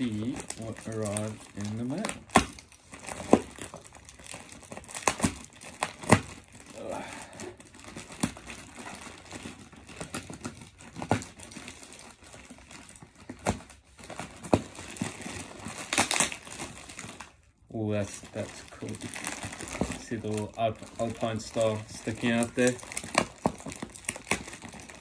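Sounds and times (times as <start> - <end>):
plastic wrapping crinkling and tearing: 0.0 - 25.0.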